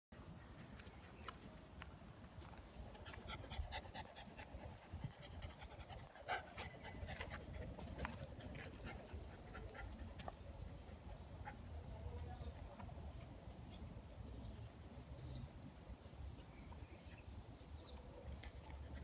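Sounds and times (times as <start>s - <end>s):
dogs panting: 2.9s - 12.0s, 17.9s - 19.0s.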